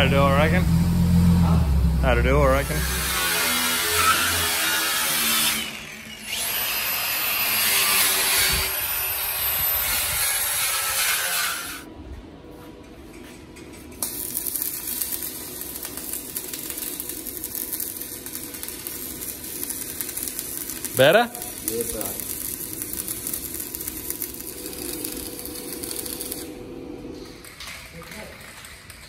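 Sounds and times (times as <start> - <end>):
welding arc crackling: 0.0 - 11.9, 13.8 - 29.0
power tool whining: 2.6 - 10.2.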